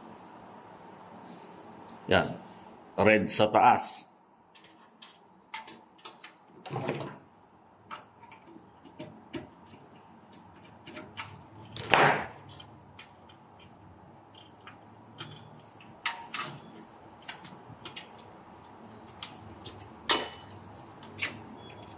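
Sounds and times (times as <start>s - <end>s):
wires and tools tapping metal: 12.4s - 21.9s.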